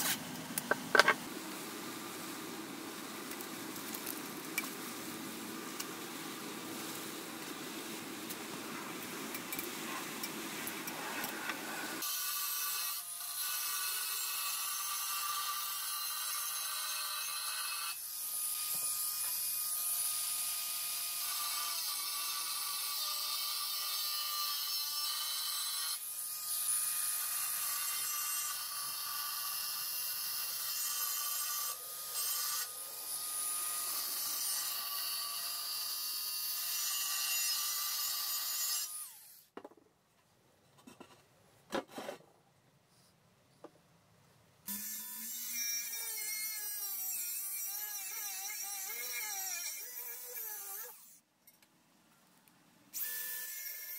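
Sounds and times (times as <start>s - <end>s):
angle grinder cutting metal: 21.1s - 39.4s, 44.7s - 51.2s.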